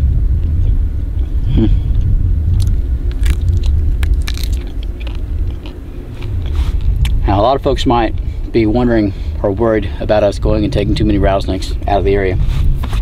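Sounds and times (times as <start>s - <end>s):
low rumble: 0.0s - 13.0s
chewing and crunching: 1.2s - 7.2s.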